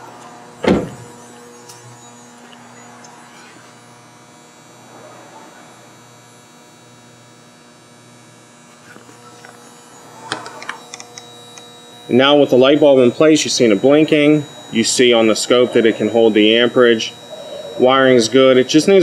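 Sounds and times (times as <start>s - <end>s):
steady low hum: 0.0s - 19.0s
car door slamming: 0.6s - 1.1s
faint held tones: 8.8s - 19.0s.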